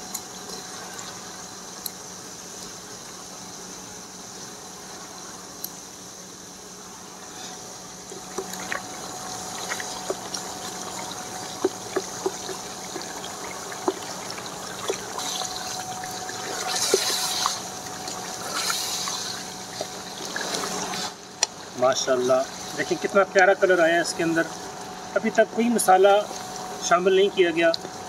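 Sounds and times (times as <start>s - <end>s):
food sizzling in oil: 7.7s - 23.0s.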